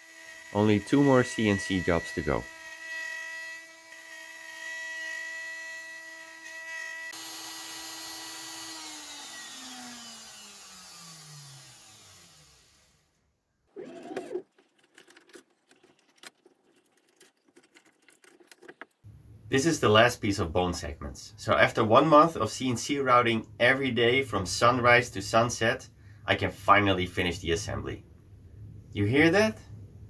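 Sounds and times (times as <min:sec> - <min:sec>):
router spindle whining: 0:00.0 - 0:13.1, 0:13.7 - 0:14.6
wood knocks and scrapes: 0:14.3 - 0:19.0.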